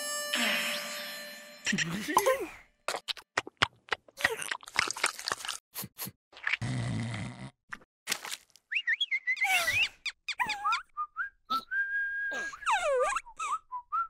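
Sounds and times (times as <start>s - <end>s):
squeaky cartoon vocal sounds: 9.3s - 10.9s.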